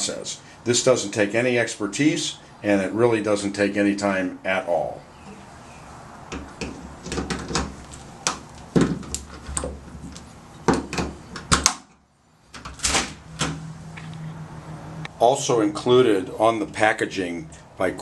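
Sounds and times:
metallic clicks and clunks from lock: 10.8 - 11.9.

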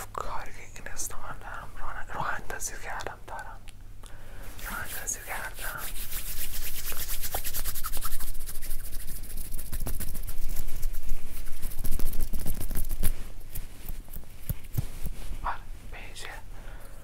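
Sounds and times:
hands rubbing close to microphone: 4.6 - 16.1.

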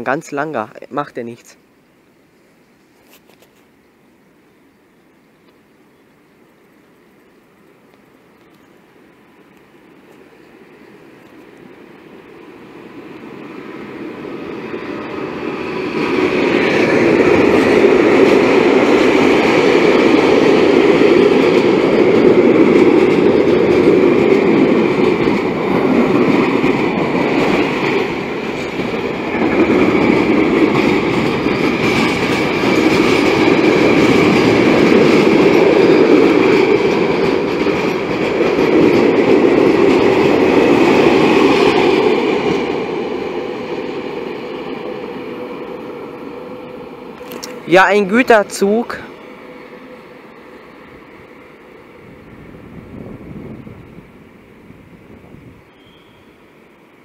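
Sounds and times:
freight train wheels clattering: 15.2 - 45.2.

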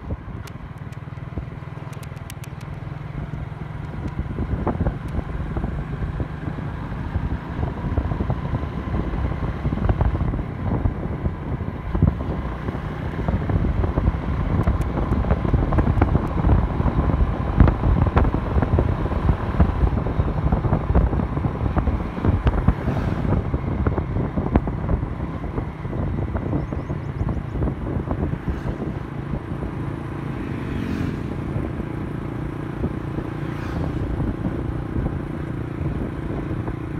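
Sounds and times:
motorcycle engine running: 0.0 - 36.9
road noise: 0.0 - 36.9
wind buffeting microphone: 0.0 - 36.9.

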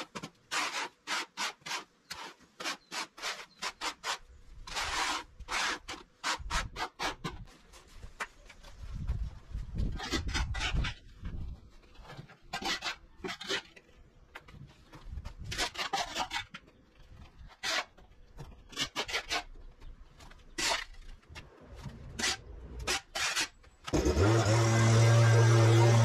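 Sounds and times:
shovel scraping on paving: 0.0 - 8.0, 9.8 - 14.0, 14.9 - 26.0.

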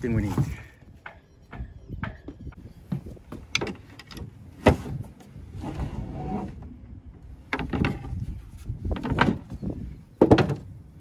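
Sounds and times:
knocks and footsteps on boat: 0.0 - 5.5, 6.6 - 11.0
sliding scrape: 5.5 - 6.6.

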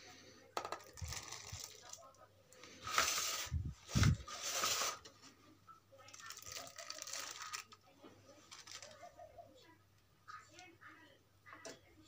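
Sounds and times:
plastic bag crinkling: 0.7 - 5.0, 6.0 - 9.1.

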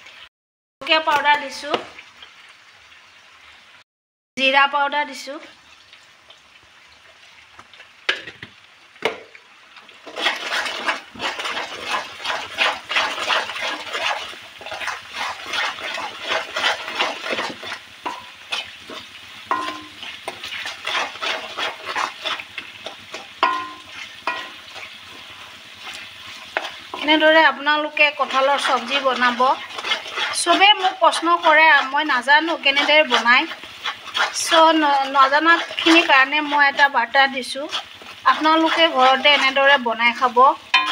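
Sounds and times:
sauce frying in oil: 0.0 - 3.8, 4.4 - 40.9
spatula scraping a metal pan: 10.0 - 40.9.

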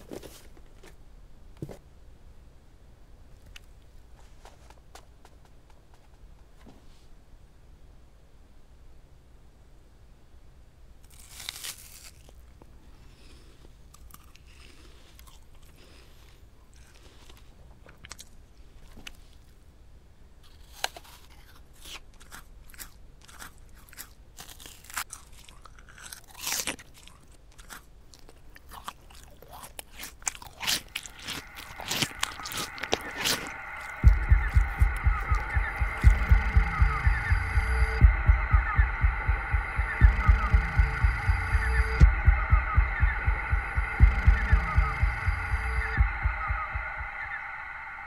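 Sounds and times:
chewing and crunching food: 11.1 - 19.6, 20.4 - 36.4
mouth clicks: 30.4 - 48.0.

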